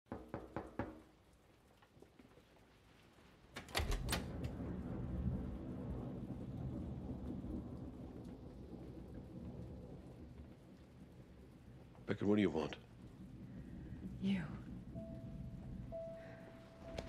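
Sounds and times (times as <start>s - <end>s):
thunder cracks and rumble: 3.8s - 17.0s.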